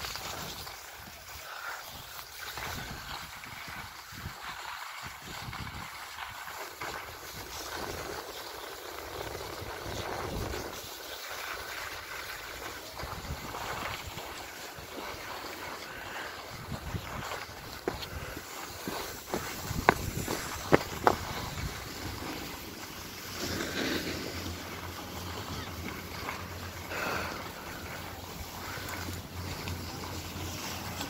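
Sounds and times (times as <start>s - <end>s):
skis scraping over snow: 0.0s - 31.0s
wind rumbling on microphone: 2.5s - 11.0s, 12.0s - 26.3s.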